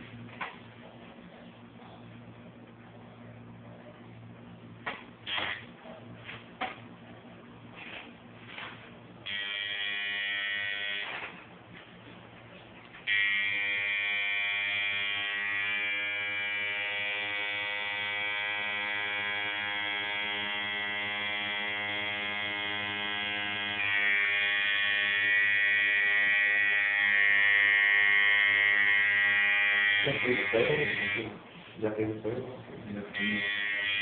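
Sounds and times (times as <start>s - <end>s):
tattoo machine buzzing: 4.8s - 5.8s, 9.2s - 11.4s, 13.0s - 31.4s, 33.1s - 34.0s.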